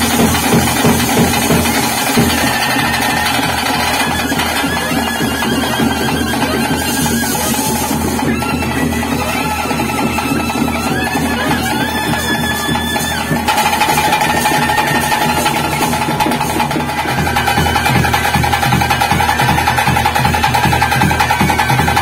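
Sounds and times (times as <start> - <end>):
dense steady drumming: 0.0 - 22.0
wind instrument holding notes: 0.0 - 22.0.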